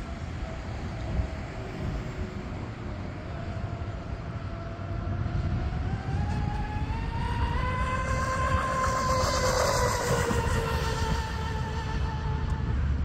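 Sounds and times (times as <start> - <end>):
high-pitched motor whine: 0.0 - 13.0.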